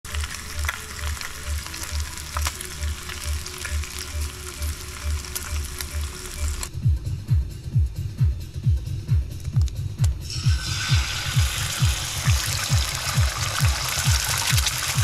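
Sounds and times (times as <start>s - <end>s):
bacon sizzling and popping: 0.0s - 6.7s, 10.2s - 15.0s
soft low beat: 2.4s - 14.8s.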